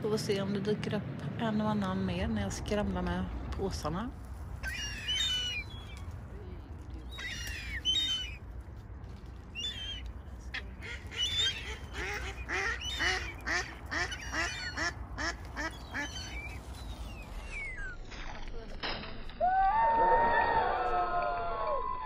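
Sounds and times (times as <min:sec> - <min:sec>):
thin high bird calls: 0:04.6 - 0:06.2, 0:06.9 - 0:08.6, 0:09.4 - 0:18.1
ducks quacking: 0:09.6 - 0:16.6.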